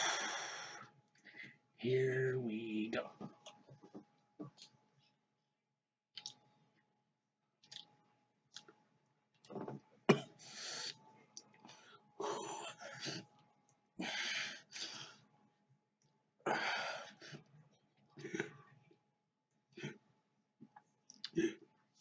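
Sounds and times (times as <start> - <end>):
man breathing hard: 0.0 - 1.7, 14.0 - 15.3, 16.4 - 17.5.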